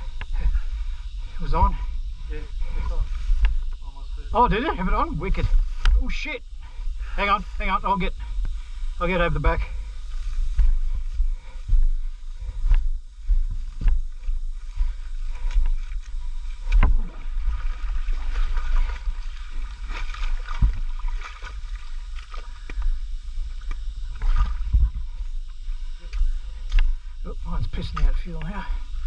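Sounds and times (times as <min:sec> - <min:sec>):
muddy water sloshing: 0:14.6 - 0:25.2.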